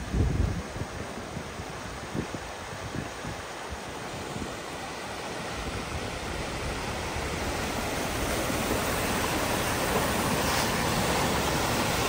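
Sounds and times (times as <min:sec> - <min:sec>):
vehicle driving through water: 0:04.5 - 0:12.0.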